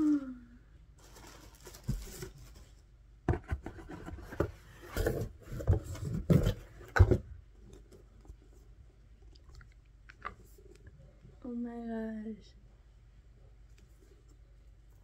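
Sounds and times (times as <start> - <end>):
packaging rustling and scraping: 1.0 - 2.8, 3.4 - 7.9.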